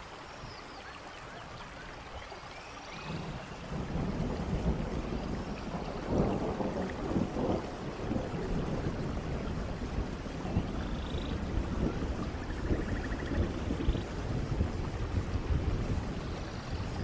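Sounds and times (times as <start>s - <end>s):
rain hiss: 0.0s - 17.0s
low rolling thunder: 3.0s - 17.0s.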